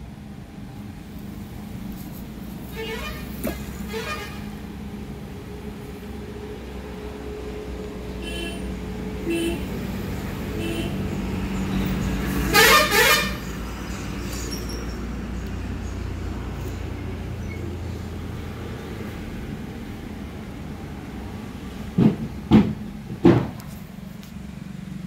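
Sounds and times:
vehicle engine hum: 0:00.0 - 0:25.0
short horn toots: 0:02.7 - 0:04.6.

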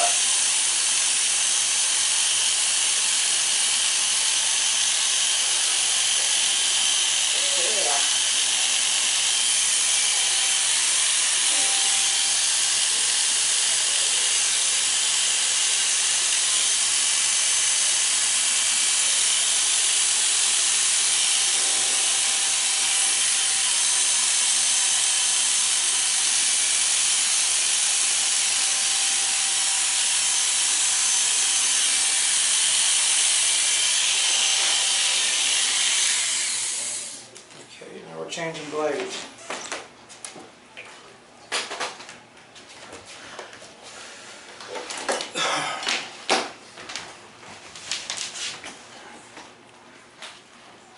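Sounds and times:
electric hair clippers buzzing: 0:00.0 - 0:37.3.

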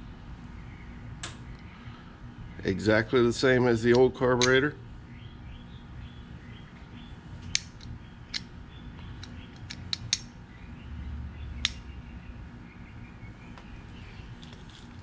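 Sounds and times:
throttle lever metallic clicks: 0:03.9 - 0:04.6, 0:09.2 - 0:10.3.

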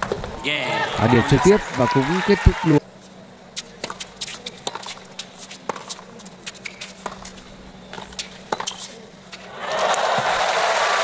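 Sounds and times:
racket striking tennis ball: 0:03.6 - 0:09.5
crowd applause: 0:09.5 - 0:11.0.

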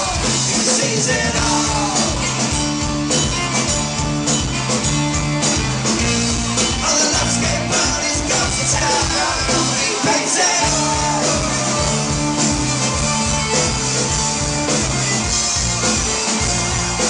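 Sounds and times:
person singing: 0:00.0 - 0:02.4, 0:06.8 - 0:12.8
live band playing rock song: 0:00.0 - 0:17.0.

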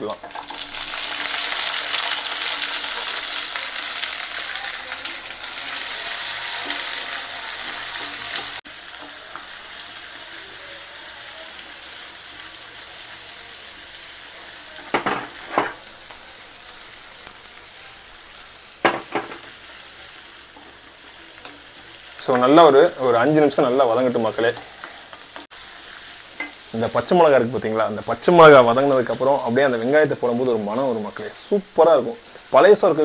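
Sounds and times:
shallots sizzling in hot oil: 0:00.0 - 0:33.0
wooden spoon scraping a pan: 0:14.9 - 0:15.8.

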